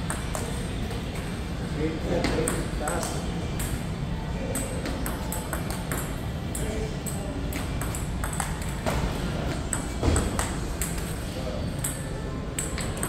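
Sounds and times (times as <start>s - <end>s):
table tennis ball clicks: 4.6s - 8.8s, 9.5s - 11.2s.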